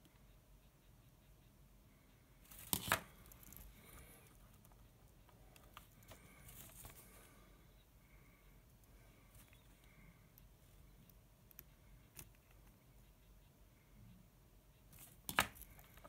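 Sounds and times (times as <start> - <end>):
faint clicks and rustles: 2.5 - 7.6.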